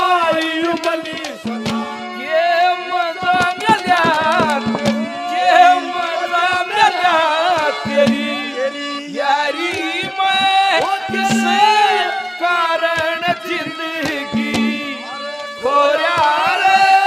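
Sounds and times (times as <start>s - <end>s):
man singing into a microphone: 0.0s - 17.0s
hand drum: 0.2s - 2.3s, 3.2s - 5.9s, 7.5s - 8.5s, 9.7s - 12.1s, 13.0s - 15.0s.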